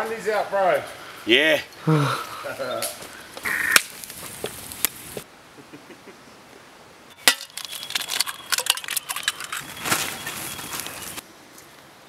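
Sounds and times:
eggs cracking on a metal pot: 0:07.2 - 0:09.6.

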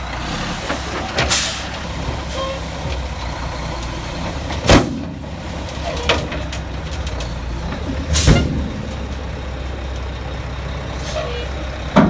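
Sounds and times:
diesel truck engine running: 0:00.0 - 0:12.0
dirt dumping from truck bed: 0:00.2 - 0:02.6, 0:04.3 - 0:09.3.

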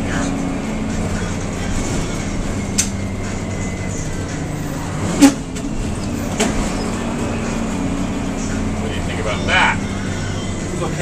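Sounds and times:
bus engine running: 0:00.0 - 0:11.0
knocks and clunk: 0:05.1 - 0:06.8.

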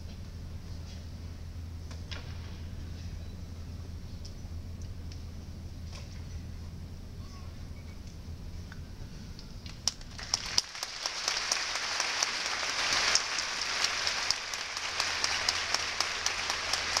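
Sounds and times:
audience applause: 0:10.1 - 0:17.0.

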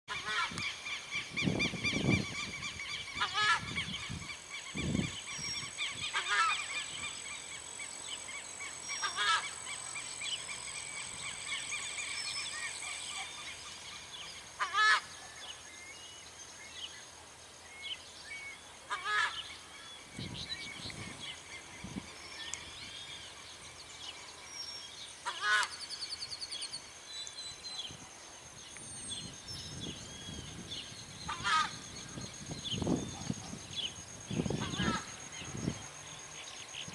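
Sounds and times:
bird honking calls: 0:02.4 - 0:03.9, 0:05.9 - 0:07.1, 0:08.9 - 0:09.7, 0:14.6 - 0:15.1, 0:18.9 - 0:19.5, 0:25.2 - 0:25.8, 0:31.2 - 0:31.9, 0:34.4 - 0:35.2.

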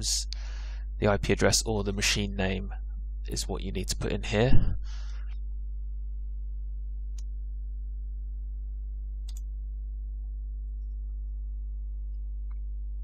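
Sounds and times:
electrical mains hum: 0:00.0 - 0:13.0
computer mouse clicks: 0:09.2 - 0:09.5.

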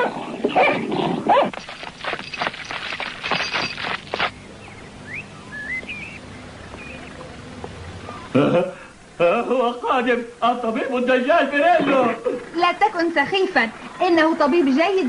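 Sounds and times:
dogs barking rapidly: 0:00.0 - 0:04.4
bird chirps: 0:01.6 - 0:08.4.

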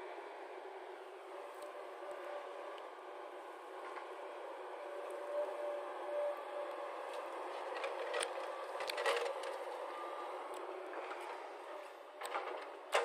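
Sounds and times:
excavator diesel engine and hydraulics: 0:00.0 - 0:13.0.

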